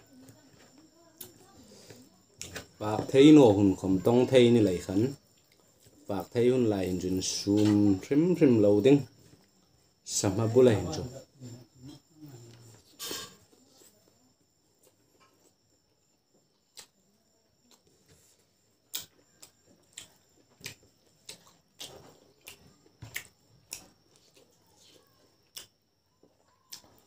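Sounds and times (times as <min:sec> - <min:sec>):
chewing and lip smacking: 0:18.9 - 0:27.0.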